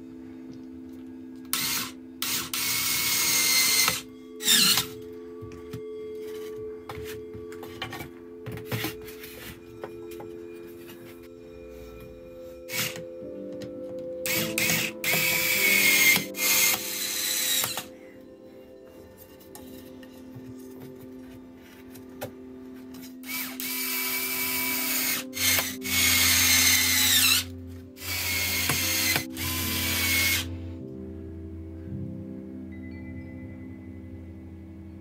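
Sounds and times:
cordless screwdriver motor whine: 1.5s - 5.0s, 12.7s - 13.0s, 14.3s - 17.9s, 23.2s - 30.5s.

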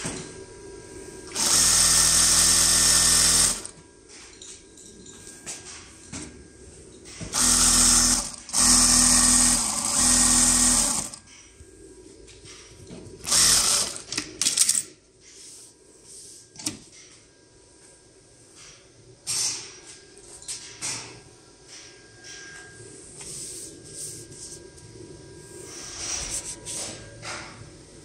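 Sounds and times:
sewing machine stitching: 7.4s - 11.2s.

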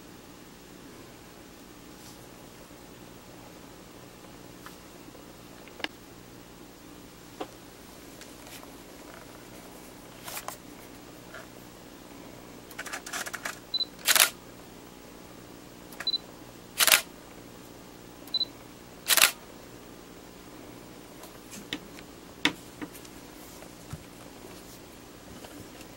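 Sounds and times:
quiet camera clicks: 13.4s - 14.4s, 16.8s - 17.1s, 19.1s - 19.4s
camera shutter firing: 14.0s - 14.4s, 16.8s - 17.1s, 19.1s - 19.4s.

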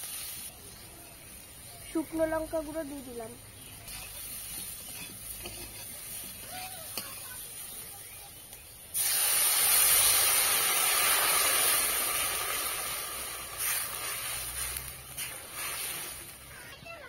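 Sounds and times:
water sizzling in a hot pan: 0.0s - 17.0s
spatula knocking: 3.8s - 7.2s.

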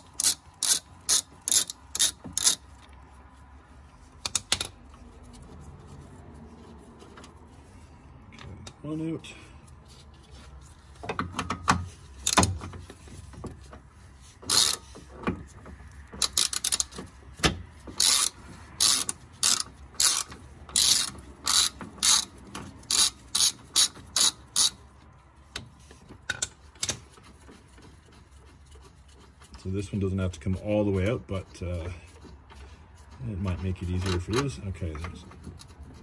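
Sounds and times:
hand ratchet clicking: 0.0s - 2.9s, 4.2s - 4.8s, 14.4s - 25.7s
sharp metal clicks: 16.1s - 24.8s.

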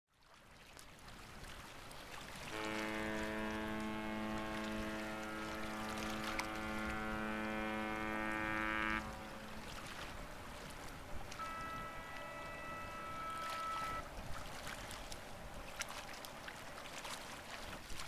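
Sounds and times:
water noise: 0.1s - 18.0s
wind: 0.1s - 18.0s
ship's horn long blast: 2.4s - 14.2s.

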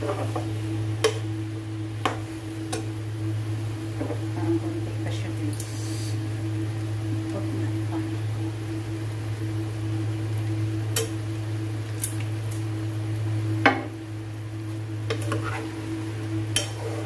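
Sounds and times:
utensil stirring in a pan: 0.0s - 3.0s, 15.0s - 17.0s
steady low hum: 0.0s - 17.0s.

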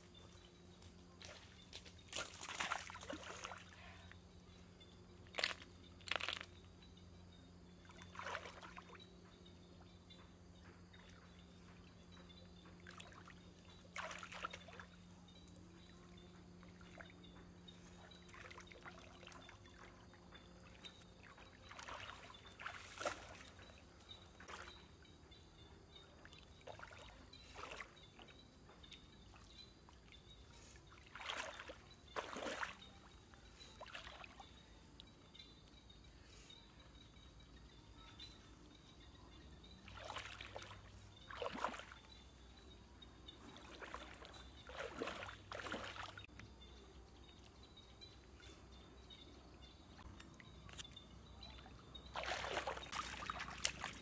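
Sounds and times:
shallow water splashing: 1.3s - 4.0s, 7.9s - 9.0s, 12.9s - 15.0s, 18.1s - 24.8s, 30.8s - 33.0s, 39.8s - 42.7s, 43.3s - 46.3s, 50.4s - 54.0s.

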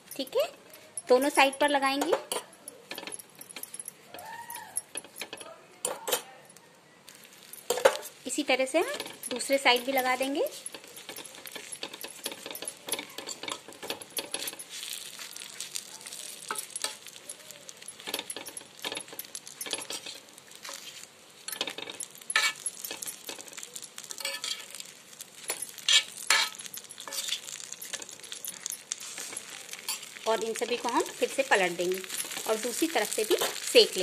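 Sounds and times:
metal spoon scraping griddle: 7.1s - 34.0s
roti sizzling in oil: 7.1s - 34.0s.

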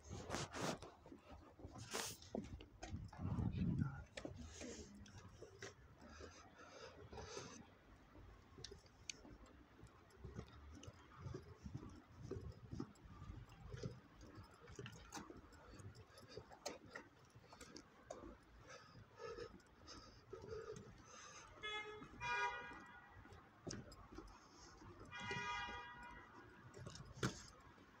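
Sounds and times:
footsteps on stone paving: 0.0s - 28.0s.

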